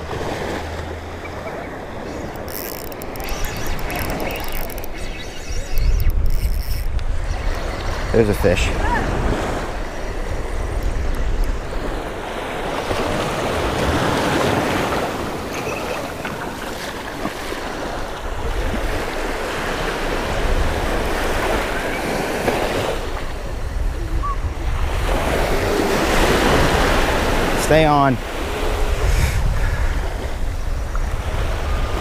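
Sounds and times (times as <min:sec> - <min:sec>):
wind rumbling on microphone: 0:00.0 - 0:27.6, 0:28.2 - 0:32.0
small surf waves washing: 0:07.0 - 0:32.0.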